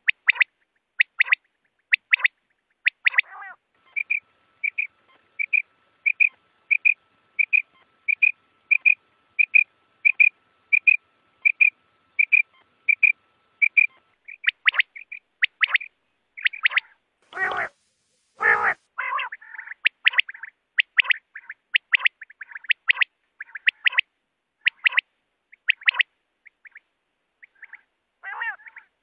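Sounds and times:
quail calling: 0.0 - 29.0.

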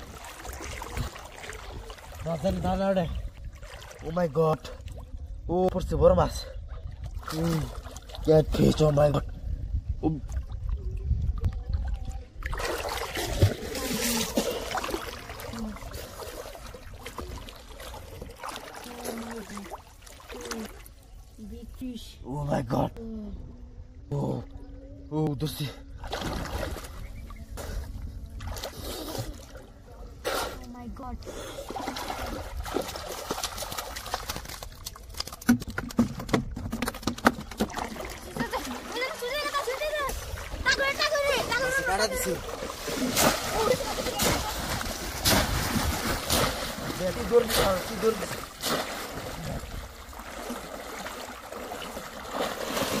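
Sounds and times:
pond water sloshing and splashing: 0.0 - 5.5, 6.5 - 9.5, 10.1 - 22.0, 25.8 - 53.0
trap knocking on plastic bucket: 35.4 - 37.9.

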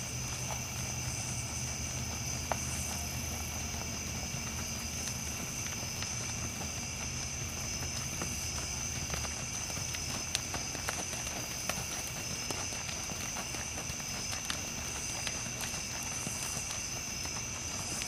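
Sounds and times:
horse trotting in sand: 0.0 - 18.0
low steady hum: 0.0 - 18.0
night insects chirring: 0.0 - 18.0.

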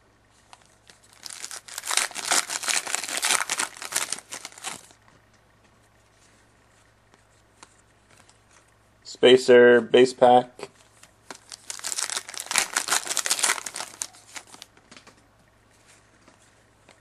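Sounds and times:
foil wrapper crackling: 0.4 - 5.0, 11.3 - 14.7.

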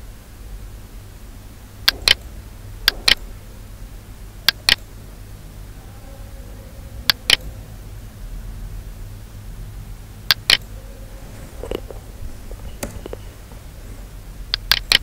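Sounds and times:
low steady hum: 0.0 - 15.0
mouse button double clicks: 1.9 - 2.2, 10.3 - 10.6, 14.5 - 15.0.

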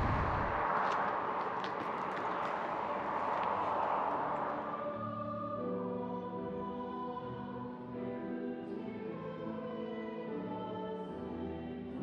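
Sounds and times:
slow choral music: 3.0 - 12.0.

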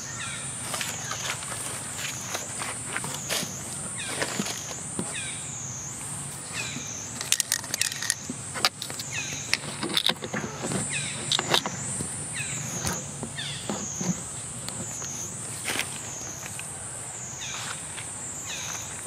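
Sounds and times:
cicadas droning: 0.0 - 19.0
sharp clicks and scratches: 7.2 - 15.1.

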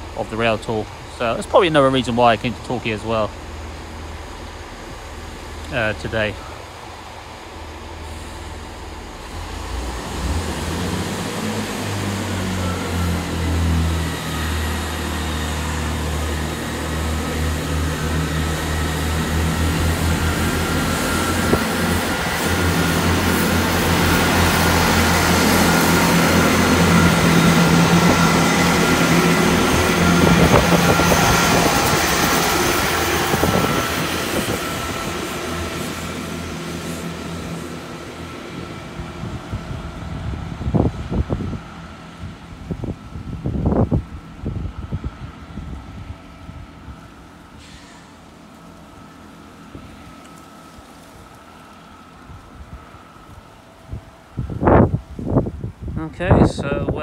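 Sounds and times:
diesel train engines revving: 0.0 - 57.0
train whine: 0.0 - 57.0.

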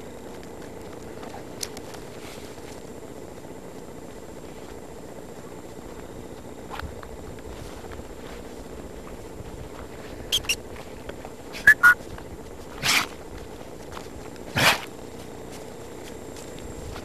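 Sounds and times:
high squeaks: 10.3 - 10.6, 11.6 - 12.0
puppy snorting: 10.3 - 10.6, 11.6 - 12.0, 12.8 - 13.2, 14.5 - 14.9.

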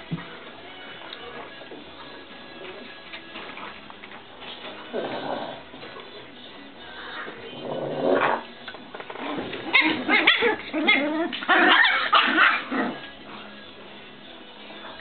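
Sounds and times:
puppies yipping and barking: 9.1 - 13.2.

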